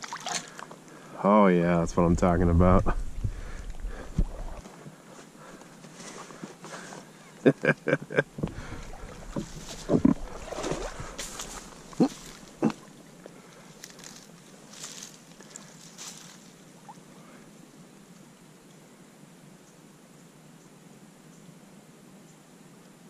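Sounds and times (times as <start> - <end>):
dry leaves rustling: 9.2 - 12.6, 13.6 - 16.6.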